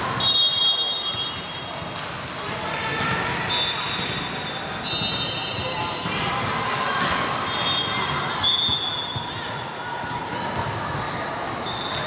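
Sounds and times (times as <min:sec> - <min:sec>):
players' voices and shouts: 0:00.0 - 0:12.0.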